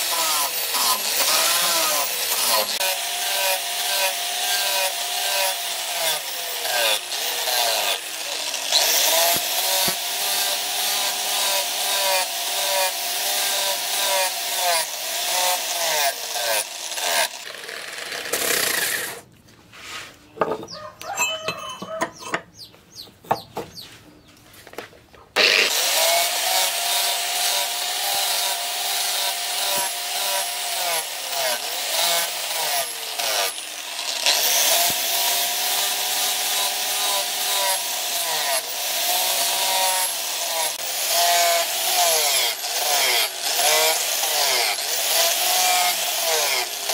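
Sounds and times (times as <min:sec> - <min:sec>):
angle grinder sanding metal: 0:00.0 - 0:17.5, 0:19.8 - 0:22.5, 0:25.4 - 0:46.9.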